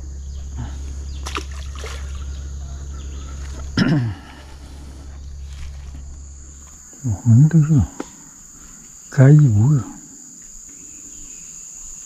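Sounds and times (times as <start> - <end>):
steady low rumble: 0.0 - 9.7
fish splashing into water: 1.2 - 2.3.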